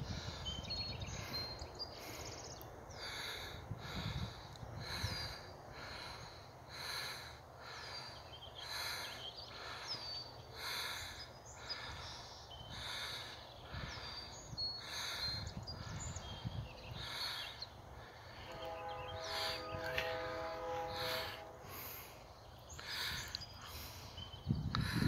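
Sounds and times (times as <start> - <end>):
wind rumble on microphone: 0.0 - 1.7, 3.4 - 6.1, 13.7 - 17.2, 24.2 - 25.0
person breathing: 0.0 - 18.6, 19.2 - 25.0
birds chirping: 0.0 - 25.0.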